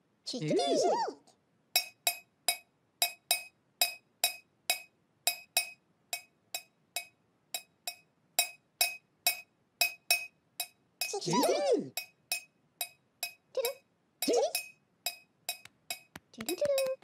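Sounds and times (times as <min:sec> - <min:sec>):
teaspoon clinking in a mug: 0:14.3 - 0:16.1.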